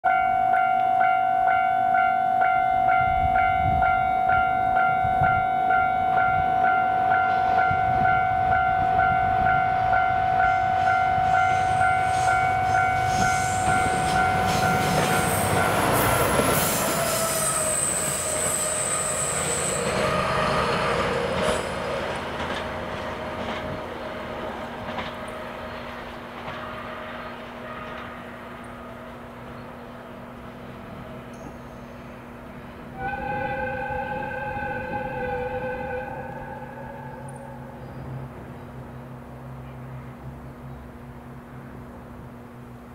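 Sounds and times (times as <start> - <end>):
locomotive horn blast: 0.1 - 21.8, 26.5 - 29.2, 32.9 - 38.3
wheel squeal: 15.2 - 20.4.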